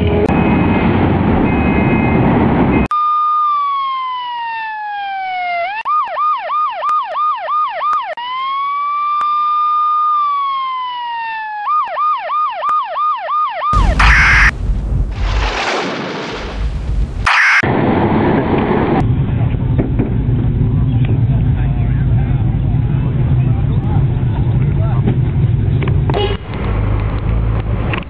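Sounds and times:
electronic police siren: 2.9s - 14.6s, 17.2s - 17.7s
loud crash: 13.8s - 19.1s
loud rushing noise: 13.8s - 19.4s.

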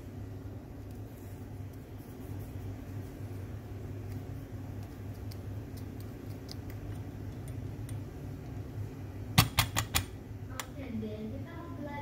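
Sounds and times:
wooden stick ticking in coffee grounds: 4.0s - 8.6s.

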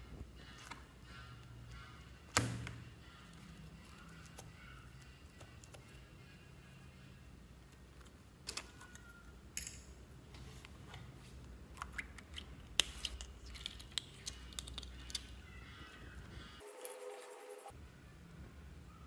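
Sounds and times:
squishy toys clicking: 11.9s - 15.4s.

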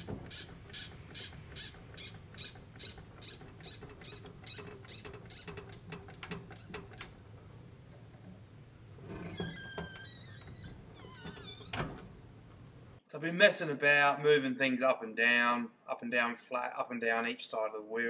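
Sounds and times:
floor jack squeaky clicks: 0.0s - 8.4s, 9.0s - 12.8s.

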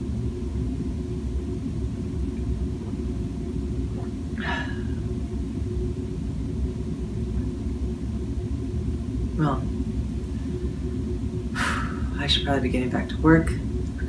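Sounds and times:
low background rumble: 0.0s - 14.0s.

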